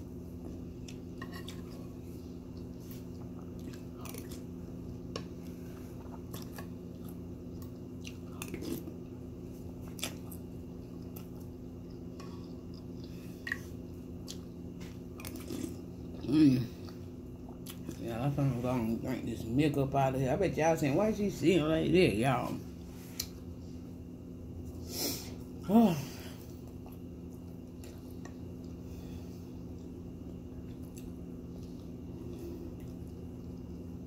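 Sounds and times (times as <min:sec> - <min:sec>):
chewing and crunching cereal: 0:00.4 - 0:19.3, 0:26.4 - 0:34.0.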